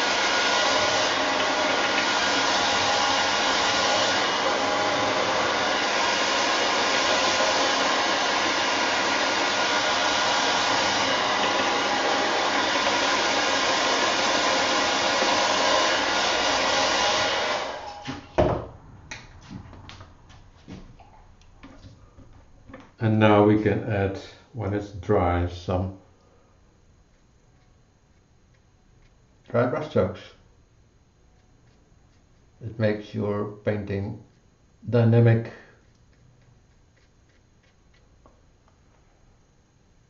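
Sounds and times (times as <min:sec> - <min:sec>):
hair dryer blowing: 0:00.0 - 0:18.4.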